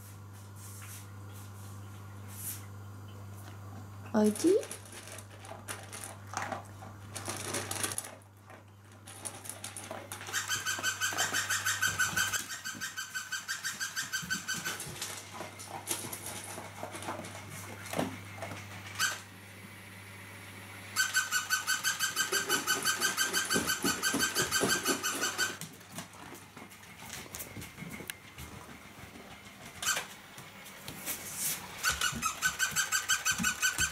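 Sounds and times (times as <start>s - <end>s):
rapid pulsed high squeaking: 10.3s - 14.8s.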